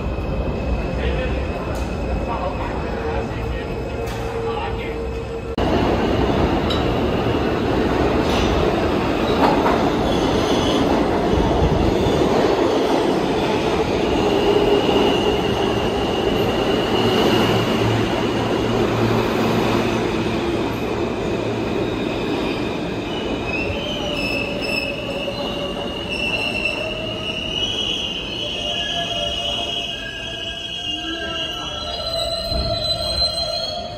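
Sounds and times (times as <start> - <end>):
train wheels rumbling on rails: 0.0 - 27.6
wheel and brake squeal: 23.1 - 33.9.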